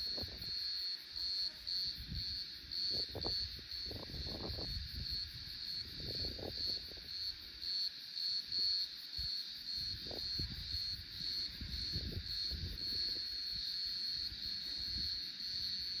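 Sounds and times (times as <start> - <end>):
insects trilling: 0.0 - 16.0
wind buffeting microphone: 1.9 - 7.2, 9.9 - 13.3.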